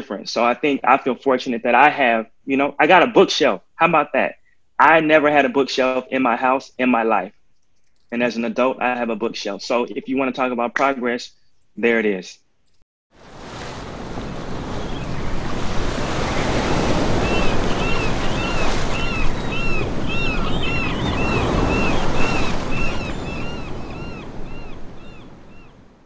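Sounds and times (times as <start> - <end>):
wind: 12.6 - 26.0
ocean surf: 13.2 - 26.0
bird calling: 14.6 - 25.8.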